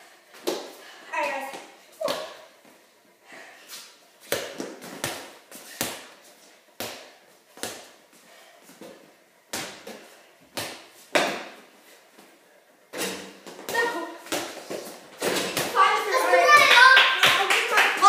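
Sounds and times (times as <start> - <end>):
ball bouncing on concrete floor: 0.3 - 2.5, 4.2 - 6.2, 6.8 - 8.0, 8.7 - 11.6, 12.9 - 15.8
ball hitting garage door: 10.6 - 11.6, 12.9 - 15.8.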